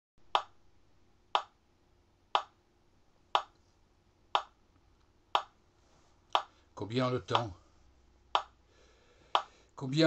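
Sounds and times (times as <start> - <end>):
clock ticking: 0.3 - 0.6, 1.4 - 1.6, 2.4 - 2.6, 3.4 - 3.6, 4.4 - 4.6, 5.3 - 5.6, 6.3 - 6.6, 7.3 - 7.6, 8.3 - 8.6, 9.3 - 9.5.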